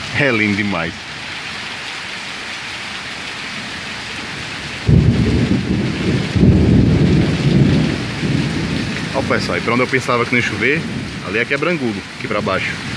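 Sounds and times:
heavy rain falling: 0.0s - 12.9s
deep rumble of thunder: 4.3s - 12.9s.

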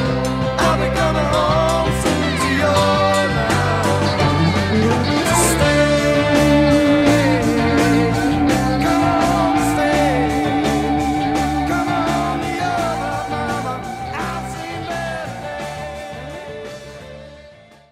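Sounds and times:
music with steady beat: 0.0s - 17.6s.

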